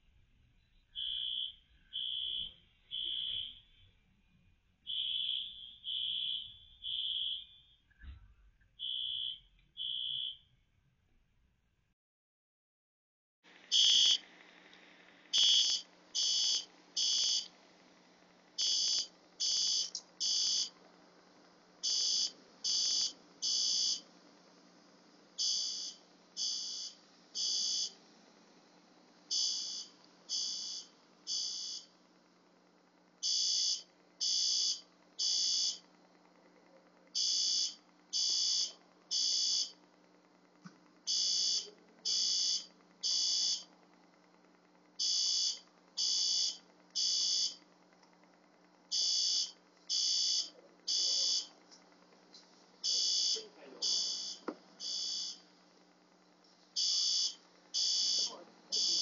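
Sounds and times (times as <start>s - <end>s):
fire alarm beeping: 0.9s - 4.0s, 4.8s - 7.8s, 8.8s - 10.5s, 13.7s - 14.2s, 15.4s - 17.5s, 18.6s - 20.8s, 21.8s - 24.0s, 25.4s - 28.0s, 29.3s - 31.9s, 33.2s - 35.8s, 37.2s - 39.8s, 41.1s - 43.7s, 45.0s - 47.6s, 48.9s - 51.5s, 52.8s - 55.4s, 56.8s - 59.0s.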